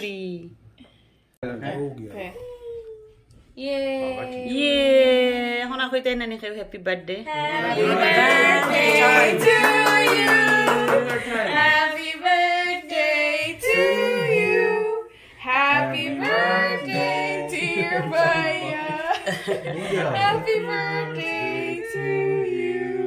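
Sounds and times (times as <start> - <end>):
group singing unaccompanied: 7.3 - 23.0.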